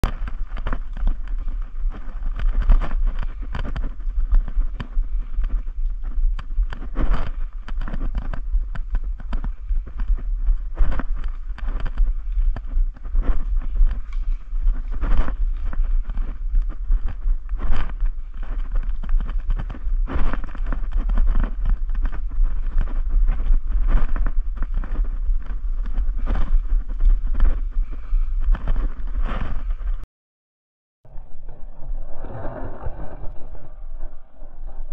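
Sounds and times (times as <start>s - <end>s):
low wind rumble: 0.0s - 30.0s, 31.0s - 34.9s.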